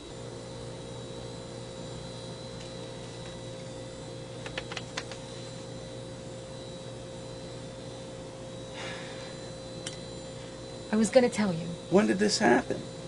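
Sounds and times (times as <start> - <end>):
electrical hum and hiss: 0.0 - 13.0
keyboard keys clicking: 4.4 - 5.2.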